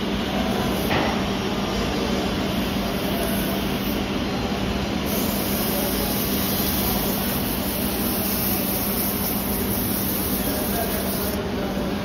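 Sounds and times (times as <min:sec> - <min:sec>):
sandpaper sanding hiss: 0:05.1 - 0:11.4.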